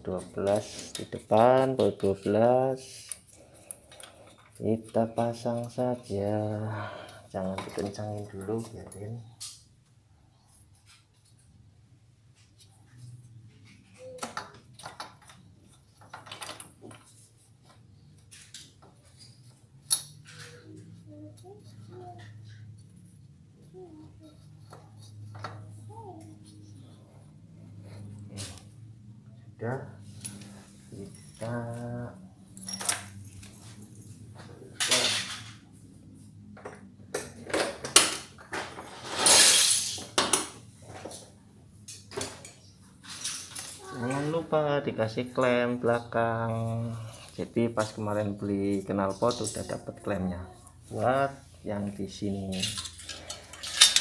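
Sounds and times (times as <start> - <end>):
metal tools clinking: 32.5 - 33.6, 38.8 - 40.2, 52.5 - 54.0
metal parts scraping: 38.6 - 40.2, 42.4 - 44.3, 52.5 - 54.0.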